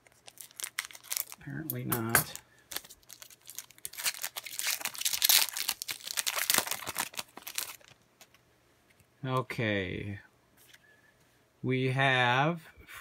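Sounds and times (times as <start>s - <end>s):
foil wrapper crinkling: 0.0s - 1.6s, 2.7s - 8.4s.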